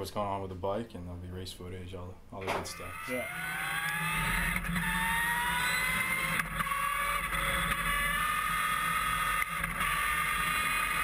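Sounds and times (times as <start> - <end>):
motorcycle engine whine: 2.4 - 11.0.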